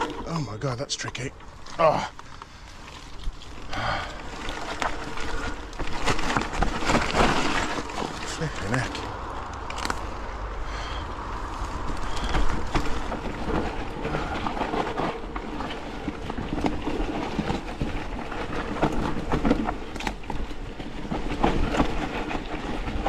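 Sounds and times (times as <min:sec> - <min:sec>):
tyres rumbling over dirt: 0:00.0 - 0:23.0
bike chain and frame rattling: 0:01.1 - 0:23.0.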